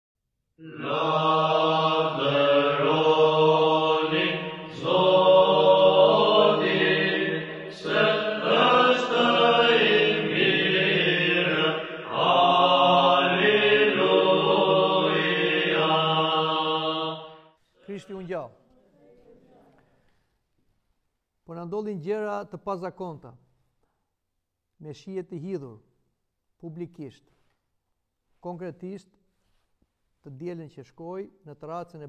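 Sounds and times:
voices chanting: 0:00.6 - 0:18.4.

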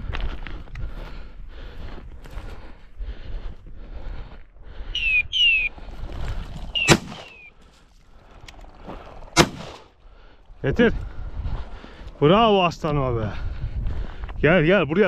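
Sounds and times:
descending whistled chirps: 0:05.0 - 0:05.7, 0:06.8 - 0:07.5
shotgun shots: 0:06.8 - 0:07.5, 0:09.4 - 0:09.9.

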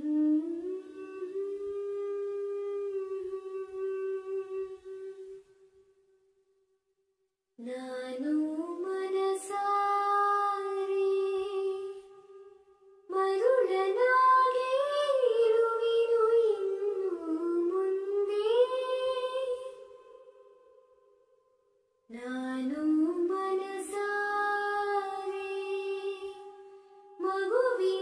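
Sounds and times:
high voice singing long notes: 0:22.1 - 0:28.0.

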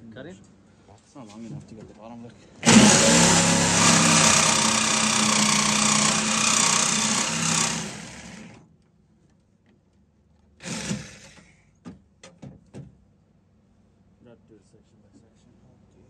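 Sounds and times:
reciprocating saw cutting sheet metal: 0:02.6 - 0:08.6.

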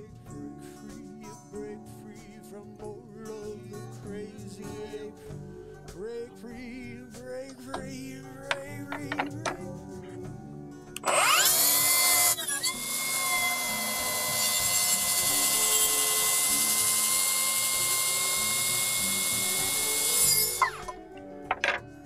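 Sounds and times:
track saw whining: 0:11.0 - 0:21.0.

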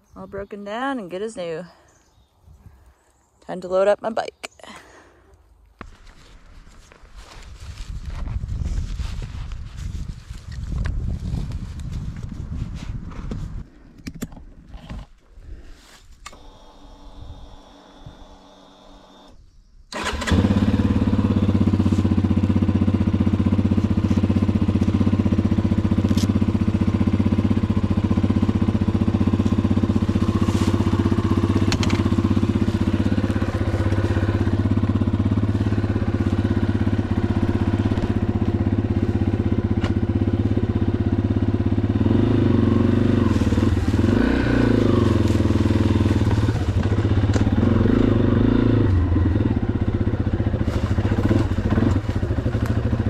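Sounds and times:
motorcycle engine running: 0:16.3 - 0:53.0.

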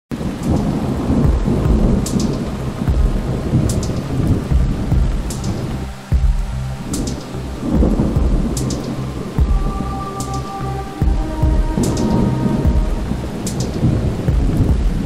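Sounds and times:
steady rain: 0:00.1 - 0:15.0
thunder rumbling: 0:00.1 - 0:15.0.

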